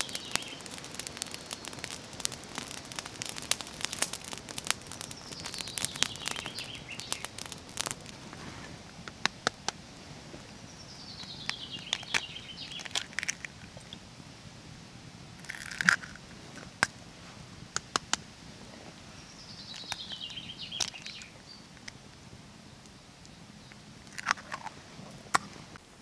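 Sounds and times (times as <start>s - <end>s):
eggshells cracking: 0.0s - 8.2s, 11.4s - 13.9s, 15.4s - 16.8s, 24.1s - 24.7s.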